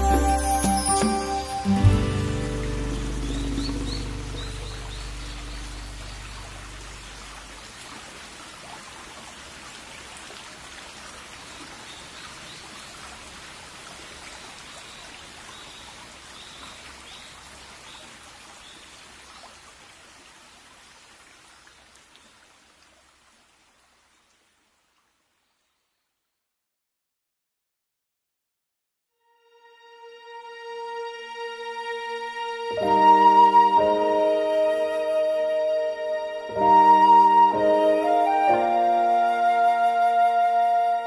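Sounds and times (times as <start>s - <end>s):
music track: 0.0s - 7.4s, 29.2s - 41.0s
rain hissing: 0.0s - 20.1s.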